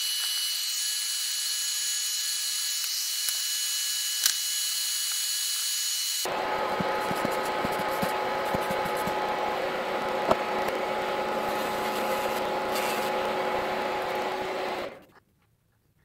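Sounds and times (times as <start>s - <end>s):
rotary tool grinding plastic: 10.3s - 15.2s.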